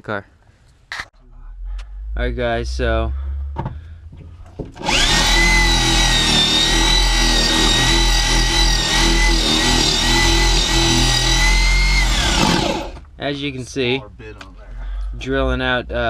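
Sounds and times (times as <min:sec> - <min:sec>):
power drill running: 0:04.8 - 0:13.0.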